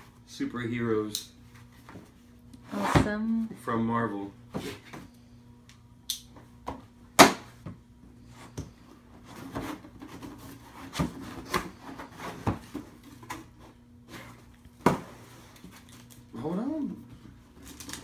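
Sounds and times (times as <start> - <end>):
cardboard and plastic rustling: 17.0 - 18.0.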